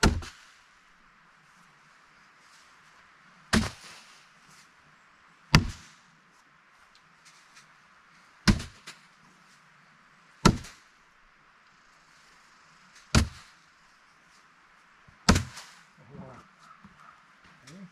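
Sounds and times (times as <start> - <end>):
bean bags thudding on boards: 8.4 - 9.0, 10.4 - 10.9, 13.1 - 13.5, 15.3 - 15.8.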